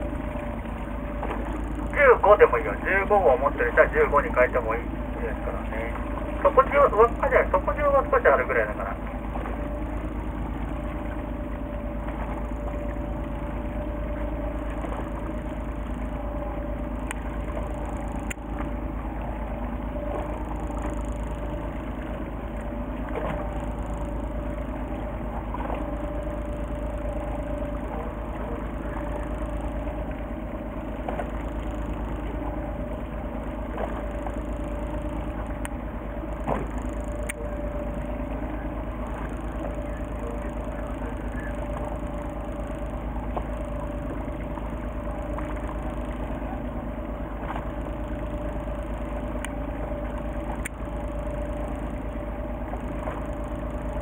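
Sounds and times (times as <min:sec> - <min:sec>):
boat engine drone: 0:00.0 - 0:54.0
faint clicks: 0:17.0 - 0:18.7, 0:36.4 - 0:37.5, 0:47.4 - 0:51.8.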